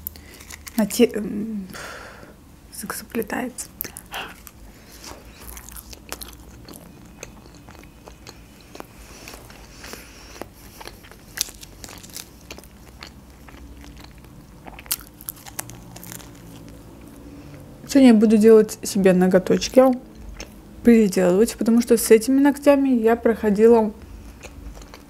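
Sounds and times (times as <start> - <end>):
chewing and biting food: 0.0 - 0.8, 3.7 - 17.7, 19.9 - 20.6, 24.0 - 25.0.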